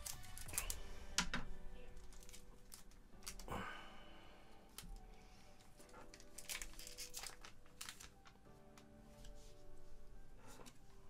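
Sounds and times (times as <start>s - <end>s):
foil pack rustle: 0.0s - 1.0s, 1.9s - 3.6s, 5.8s - 8.7s
trading cards clicking and rustling: 0.0s - 3.5s, 4.7s - 9.4s.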